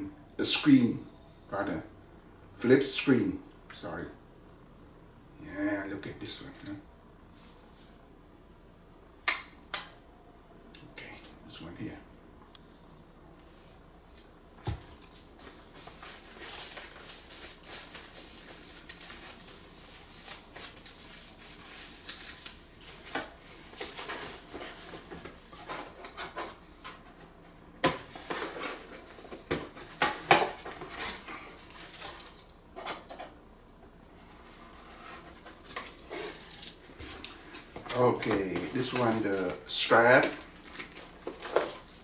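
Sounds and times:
packaging rustling: 0:35.4 - 0:42.0.

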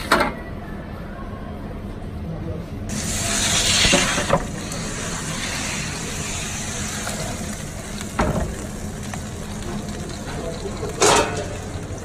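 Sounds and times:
oven hiss and hum: 0:02.2 - 0:12.0
metal tray clank: 0:11.0 - 0:11.6.

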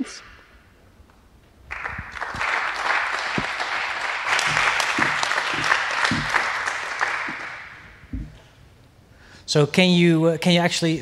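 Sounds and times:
audience applauding: 0:01.7 - 0:08.0.

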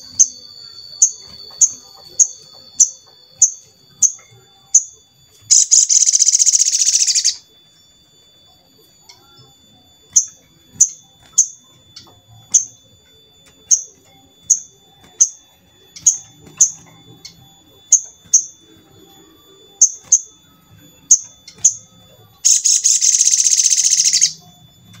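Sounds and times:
bird rapid trill: 0:00.0 - 0:25.0
bird high chips: 0:05.5 - 0:07.4, 0:21.0 - 0:24.4.

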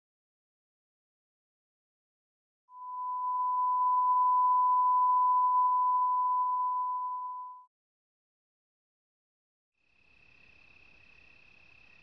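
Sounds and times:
steady beep tone: 0:02.8 - 0:07.6.

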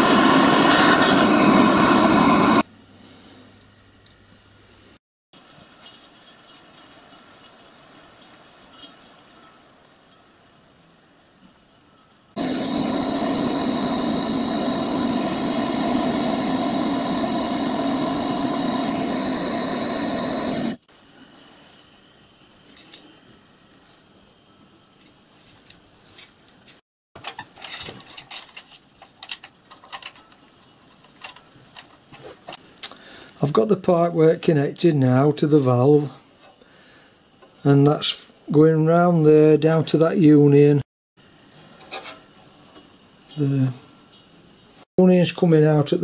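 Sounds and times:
loud mechanical running sound: 0:00.0 - 0:02.6, 0:12.4 - 0:20.8.

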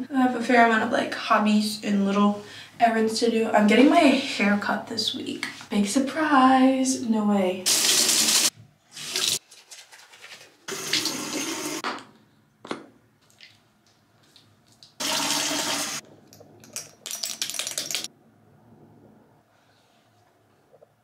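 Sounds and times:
sink tap running: 0:07.7 - 0:09.4, 0:10.7 - 0:11.8, 0:15.0 - 0:16.0.

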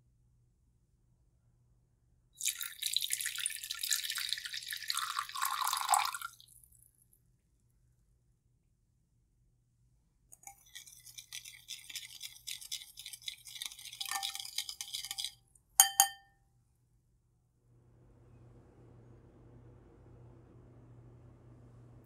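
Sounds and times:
whisk scraping against bowl: 0:10.4 - 0:15.3
whisk knocking on bowl: 0:11.4 - 0:16.2.

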